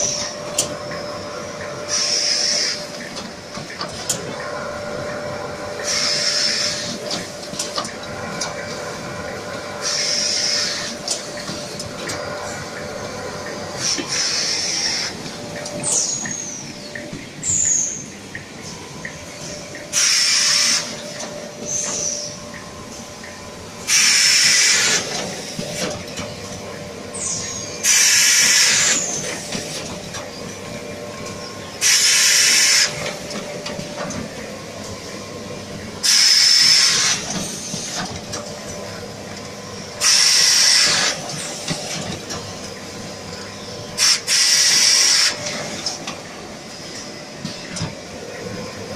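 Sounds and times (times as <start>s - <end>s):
loud machine hiss: 0.0s - 3.0s, 4.9s - 7.2s, 8.8s - 16.8s, 19.4s - 23.0s, 23.7s - 26.0s, 27.0s - 30.0s, 31.8s - 33.4s, 35.0s - 38.1s, 39.8s - 45.9s
mechanical hum: 0.0s - 48.9s.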